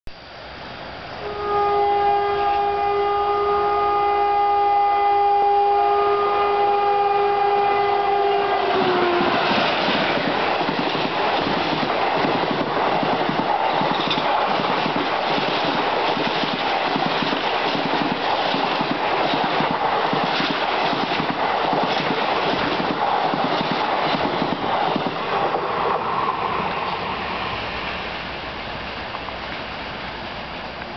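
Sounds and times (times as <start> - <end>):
train horn blowing: 1.2 - 9.7
train wheels clattering on rails: 8.7 - 25.6.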